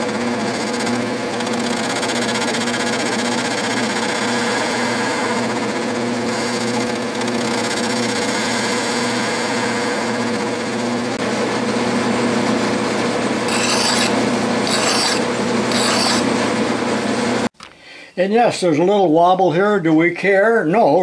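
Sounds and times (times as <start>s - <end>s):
lathe running: 0.0s - 17.5s
hand file rasping on metal: 13.5s - 16.3s.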